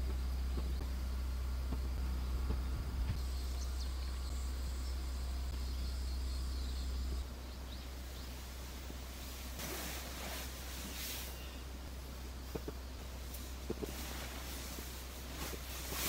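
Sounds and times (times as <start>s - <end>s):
low rumble: 0.0s - 16.0s
faint high chirps: 2.2s - 8.5s.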